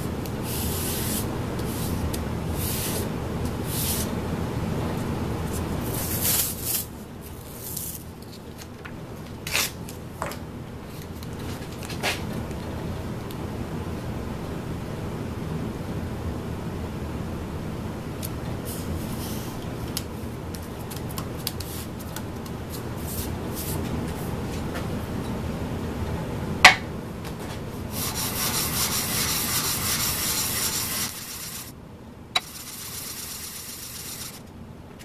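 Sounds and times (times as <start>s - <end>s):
metal plate sanding strokes: 27.9s - 31.7s, 32.4s - 34.4s.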